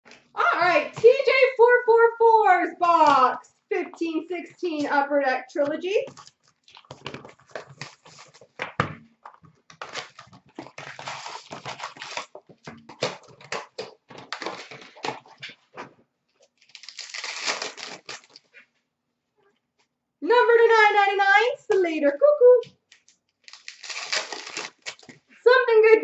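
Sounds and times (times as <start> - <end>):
plastic wrapper crinkling: 6.1 - 8.6, 9.2 - 15.5, 16.4 - 18.6, 22.9 - 25.3.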